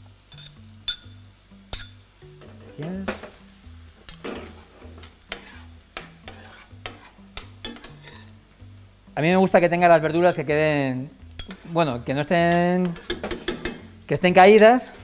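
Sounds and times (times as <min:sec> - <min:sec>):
soft background music: 0:00.0 - 0:15.0
vegetables sizzling in oil: 0:00.0 - 0:15.0
metal spoon scraping and clinking: 0:00.3 - 0:01.1, 0:01.7 - 0:02.8, 0:04.1 - 0:08.3, 0:11.4 - 0:11.7, 0:12.5 - 0:13.9.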